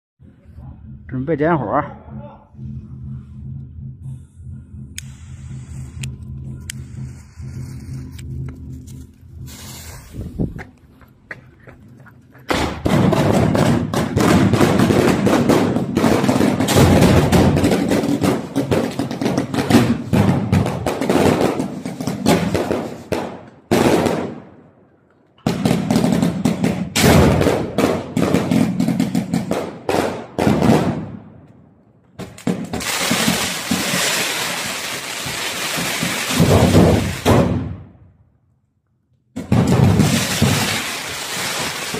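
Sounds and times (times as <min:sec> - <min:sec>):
fireworks hiss and crackle: 0:09.4 - 0:10.6, 0:32.4 - 0:37.2, 0:39.9 - 0:41.9
fireworks pops and bangs: 0:12.5 - 0:24.4, 0:25.4 - 0:31.2, 0:32.2 - 0:37.8, 0:39.4 - 0:41.9.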